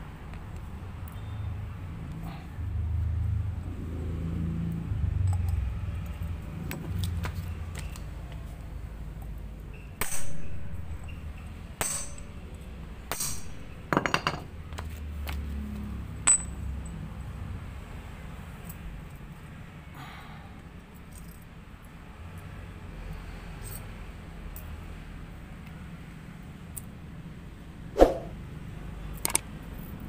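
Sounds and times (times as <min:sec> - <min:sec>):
metallic clinks of tool on metal: 0:09.8 - 0:14.5, 0:16.2 - 0:17.1.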